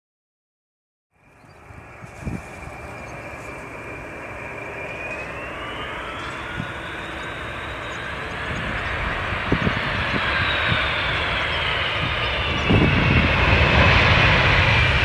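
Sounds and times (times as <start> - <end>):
jet engines whining: 1.2 - 15.0.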